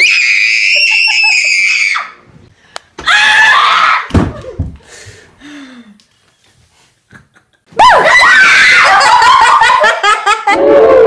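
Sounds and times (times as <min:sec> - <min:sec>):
girl screaming in fright: 0:00.0 - 0:02.2, 0:03.0 - 0:04.2, 0:07.8 - 0:09.2.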